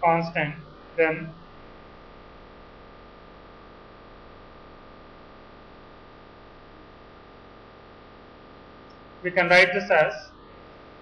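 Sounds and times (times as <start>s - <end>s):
recording background hiss: 0.0s - 11.0s
thin high whine: 0.0s - 11.0s.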